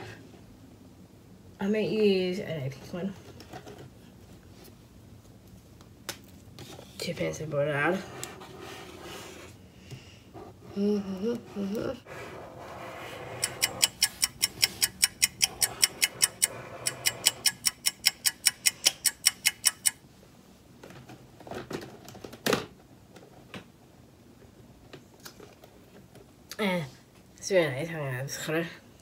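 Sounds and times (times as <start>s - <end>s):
fast sharp clicks: 13.4s - 20.0s.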